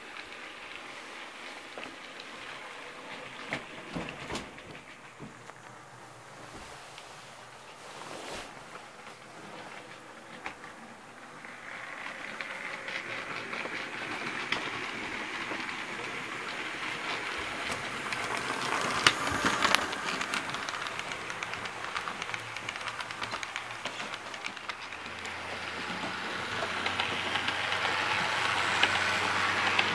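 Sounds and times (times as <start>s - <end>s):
model train wheels clicking: 0.0s - 6.4s, 8.7s - 29.9s
sharp clacks: 11.7s - 29.9s.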